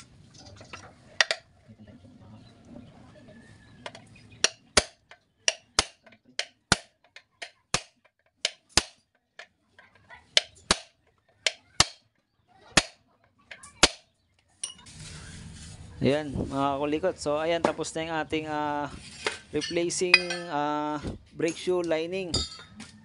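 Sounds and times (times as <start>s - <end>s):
hammer striking steel punch: 4.4s - 7.0s, 7.7s - 9.0s, 11.5s - 12.0s.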